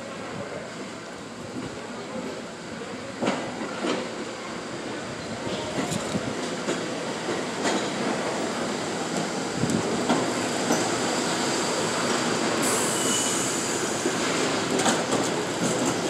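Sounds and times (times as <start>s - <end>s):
train wheels clattering and squealing: 5.2s - 16.0s
high hiss: 10.3s - 14.6s.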